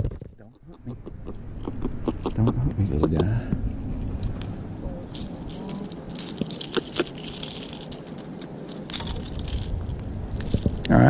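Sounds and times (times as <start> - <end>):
fishing lure clicks and rattles: 5.1 - 10.9.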